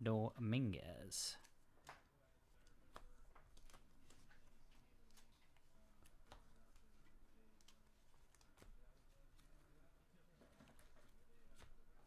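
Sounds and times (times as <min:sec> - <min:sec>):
trading cards clicking and rustling: 0:01.4 - 0:09.8.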